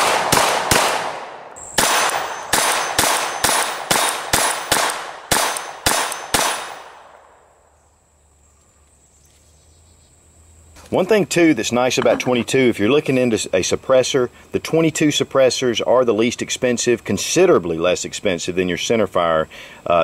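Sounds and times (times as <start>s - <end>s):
pistol shots: 0.0s - 7.3s.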